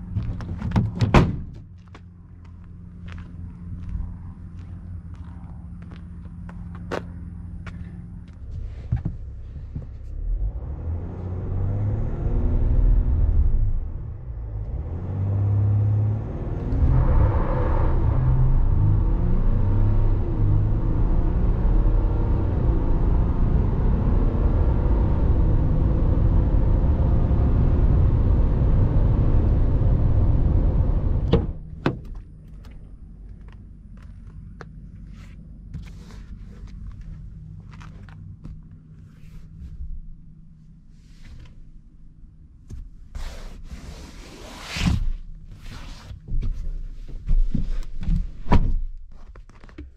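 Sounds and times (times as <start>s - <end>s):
road noise: 0.0s - 48.3s
diesel engine accelerating: 10.2s - 31.7s.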